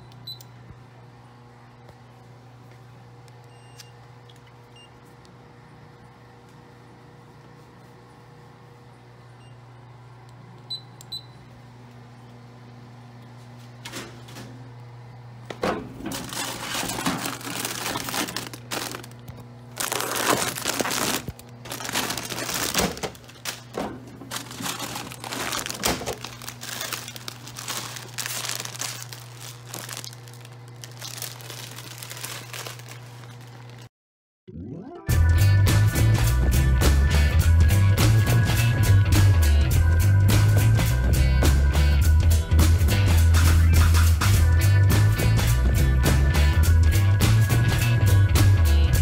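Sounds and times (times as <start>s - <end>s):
vending machine beeps: 0.0s - 0.6s, 3.4s - 4.1s, 4.7s - 5.0s, 9.4s - 9.7s, 10.7s - 11.5s
vending machine motor running: 0.0s - 33.9s
foil chip bags crinkling: 16.0s - 33.9s
bags dropping thunk: 19.8s - 27.0s.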